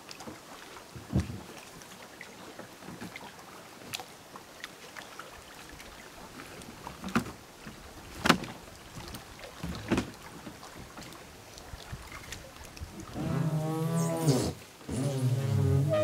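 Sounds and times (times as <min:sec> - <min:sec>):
knocks on kayak hull: 0:08.2 - 0:08.5.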